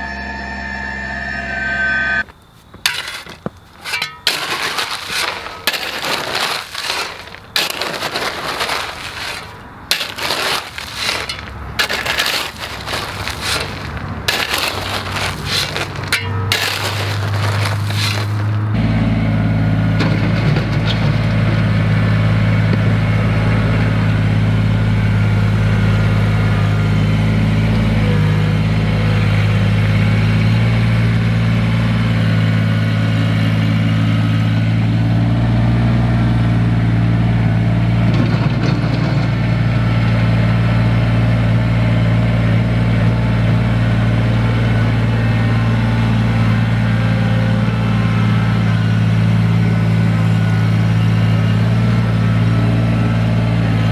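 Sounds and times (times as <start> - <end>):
tractor diesel engine running: 0.0 - 53.9
scraping of soil and stones: 2.3 - 18.8.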